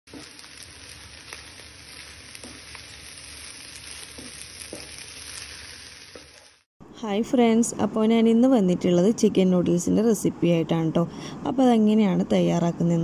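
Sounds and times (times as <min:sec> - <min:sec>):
food sizzling in oil: 0:00.1 - 0:06.7.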